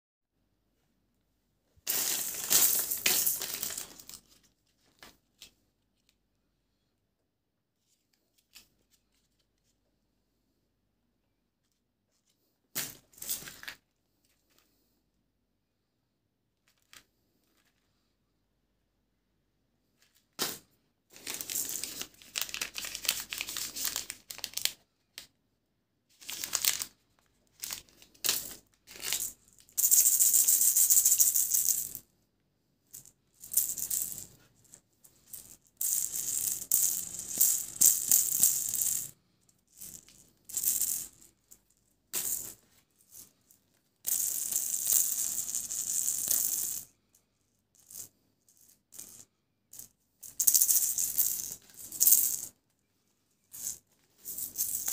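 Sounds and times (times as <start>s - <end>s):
plastic wrappers crinkling: 21.2s - 25.2s, 26.2s - 29.2s.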